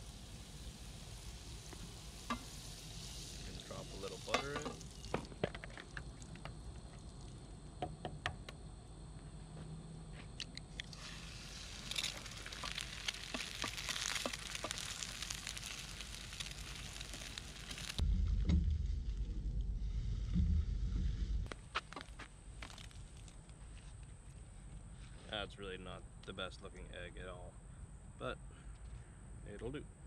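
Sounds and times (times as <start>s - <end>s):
butter sizzling in a pan: 0.0s - 5.4s, 11.0s - 18.0s
low rumble: 15.4s - 21.5s.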